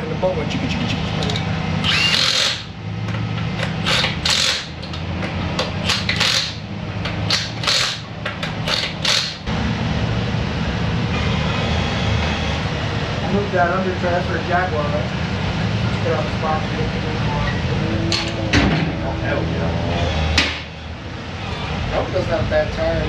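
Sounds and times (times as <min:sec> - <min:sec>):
steady low hum: 0:00.0 - 0:23.0
workshop tool bursts: 0:01.8 - 0:02.8, 0:03.8 - 0:04.8, 0:05.8 - 0:06.6, 0:07.3 - 0:09.5.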